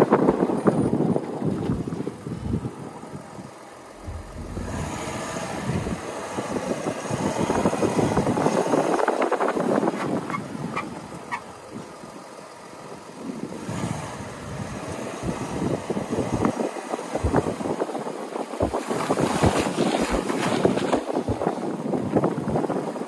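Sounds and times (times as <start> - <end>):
engine running: 0.3 - 17.9
tyres rolling through snow: 4.0 - 10.3, 18.6 - 22.3.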